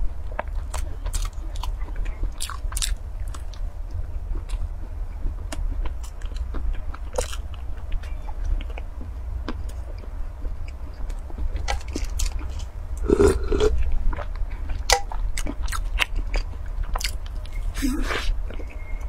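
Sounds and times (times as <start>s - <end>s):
chewing and crunching: 0.2s - 19.0s
mouth sound: 13.0s - 13.8s, 17.7s - 18.4s.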